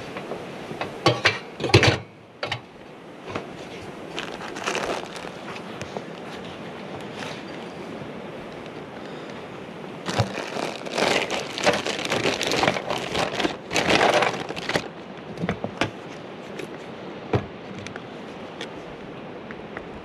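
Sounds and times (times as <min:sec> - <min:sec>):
rubber rubbing and scraping: 0:10.1 - 0:14.9.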